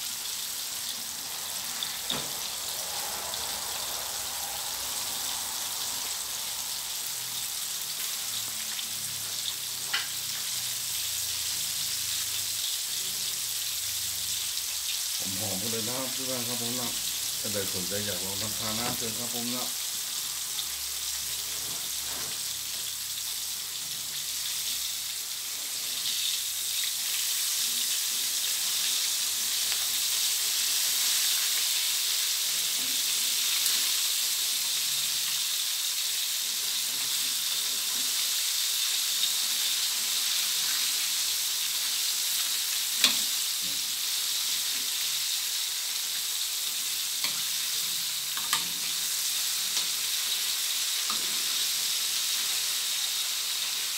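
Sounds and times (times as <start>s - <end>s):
wings deep-frying in oil sizzle: 0.0s - 53.9s
tongs clinking on wok: 48.4s - 48.9s.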